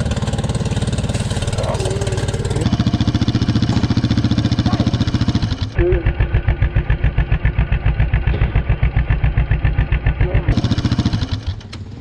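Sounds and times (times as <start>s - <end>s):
engine idling: 0.0s - 12.0s.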